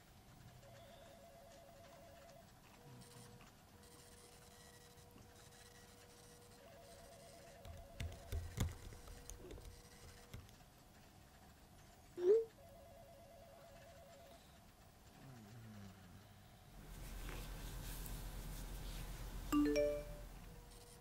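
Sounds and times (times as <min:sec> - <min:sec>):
telephone ringing faintly: 0:00.4 - 0:10.4, 0:12.5 - 0:14.8, 0:16.8 - 0:21.0
knocks: 0:07.7 - 0:10.5.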